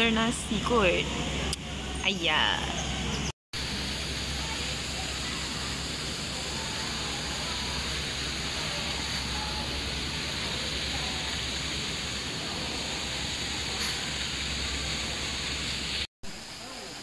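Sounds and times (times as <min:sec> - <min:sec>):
rain falling: 0:03.6 - 0:17.0.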